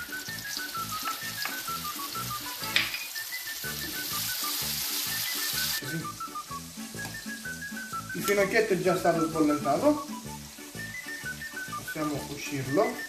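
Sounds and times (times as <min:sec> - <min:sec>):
onion frying in oil: 0:00.0 - 0:13.0.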